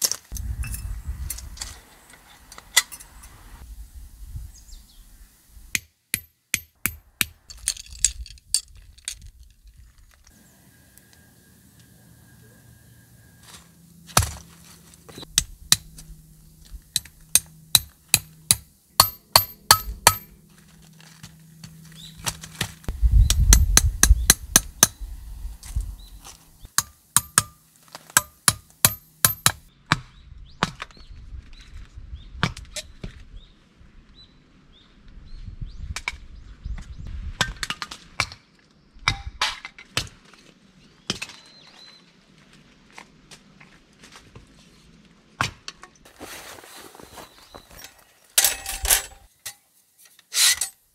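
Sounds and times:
blade knocking on wood: 28.2 - 29.6.

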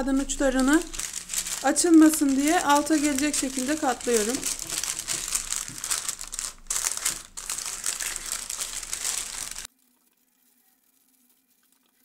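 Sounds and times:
paper crinkling and rustling: 0.0 - 9.7.

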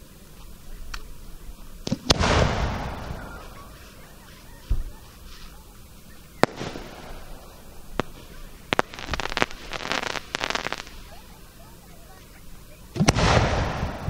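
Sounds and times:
firework boom: 1.8 - 3.8, 12.9 - 14.0
crackling firework bangs: 1.8 - 5.5, 6.3 - 12.0, 12.9 - 14.0
firework cracks: 1.8 - 5.6, 6.3 - 14.0.

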